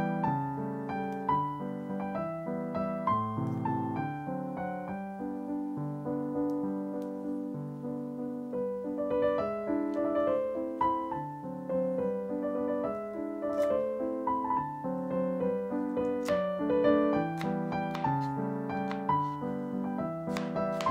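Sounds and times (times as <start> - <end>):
piano music: 0.0 - 20.9.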